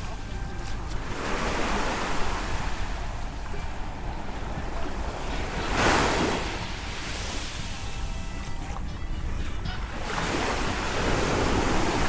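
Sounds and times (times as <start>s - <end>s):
small waves washing on sand: 0.0s - 8.5s, 9.9s - 12.0s
wind rumble on microphone: 0.0s - 12.0s.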